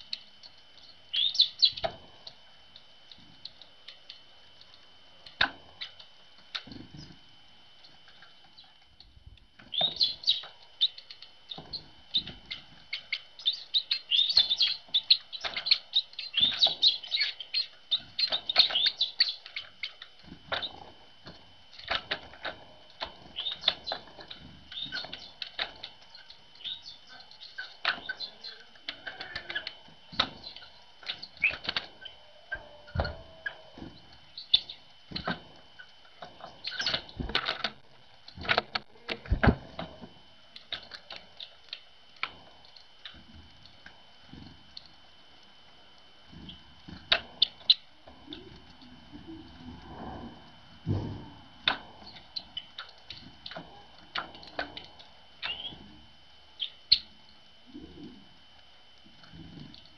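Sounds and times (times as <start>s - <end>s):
birds chirping: 0.0s - 4.4s, 5.2s - 8.9s, 9.6s - 37.8s, 45.9s - 49.9s, 50.9s - 56.0s, 56.6s - 58.2s
wings fluttering: 5.2s - 45.0s, 46.2s - 56.0s.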